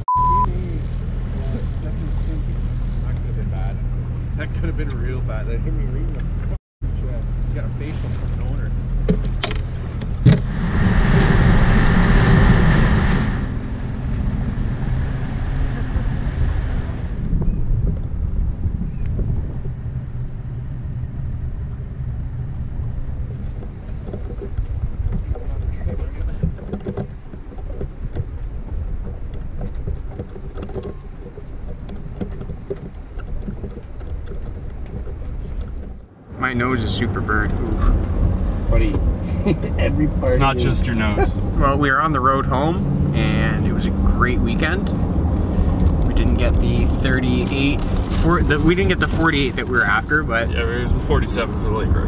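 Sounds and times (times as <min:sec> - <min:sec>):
boat motor running: 0:00.3 - 0:19.0
wind on microphone: 0:09.7 - 0:36.0
water rushing along hull: 0:22.9 - 0:39.2.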